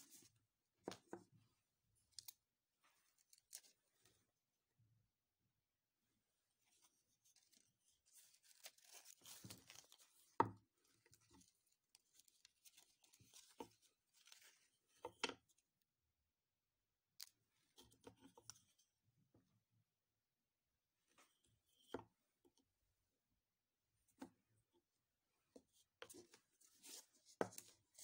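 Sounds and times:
craft items rustling: 6.7 - 10.3.

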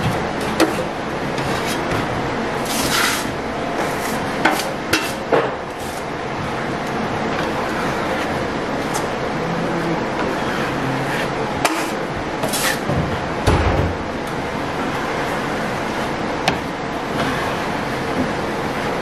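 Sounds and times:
taping knife scraping compound: 2.6 - 5.2, 10.2 - 12.9.

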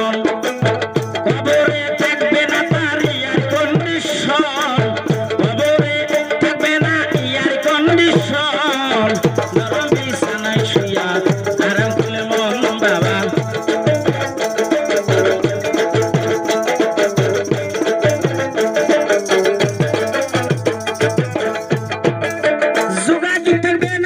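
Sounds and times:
stringed instrument melody: 7.3 - 24.0
shaker: 9.2 - 22.9.

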